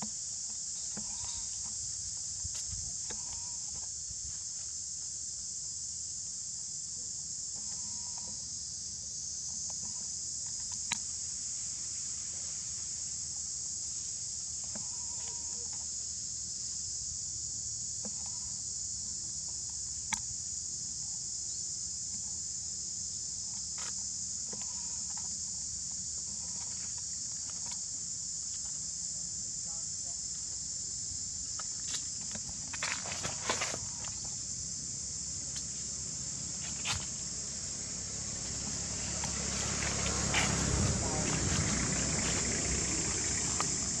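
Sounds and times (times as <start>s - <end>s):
insect chorus drone: 0.0s - 44.0s
scuffling noise: 31.6s - 34.3s, 36.6s - 37.2s, 39.2s - 42.6s.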